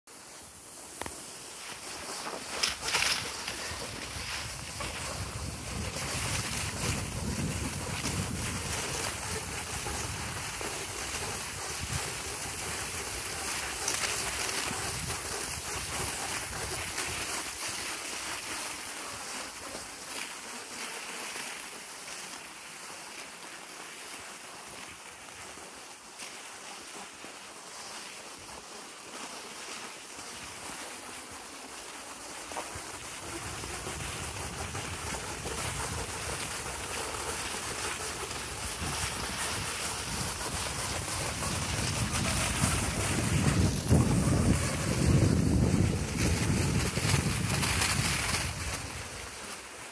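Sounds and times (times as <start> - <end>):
wind blowing on microphone: 2.6 - 17.3, 33.2 - 49.4.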